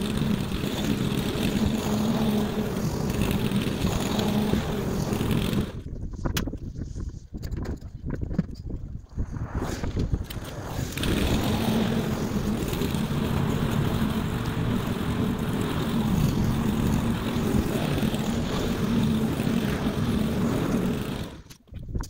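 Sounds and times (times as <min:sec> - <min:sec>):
lawn mower engine drone: 0:00.0 - 0:05.9, 0:10.2 - 0:21.6.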